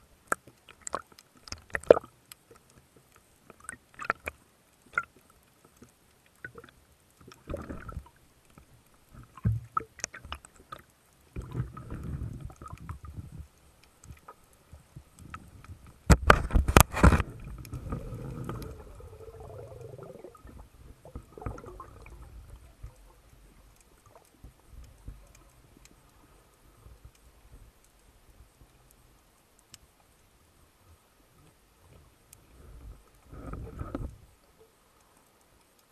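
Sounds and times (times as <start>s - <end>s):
low rumbling water movement: 0.0s - 35.8s
underwater clicks and knocks: 0.3s - 2.7s, 3.5s - 25.9s, 32.8s - 34.3s.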